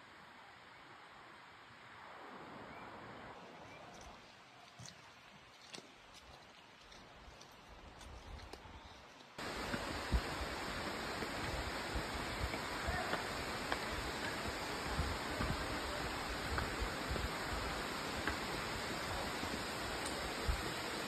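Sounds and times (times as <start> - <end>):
running water rushing: 9.4 - 21.0
wind buffeting microphone: 9.4 - 21.0.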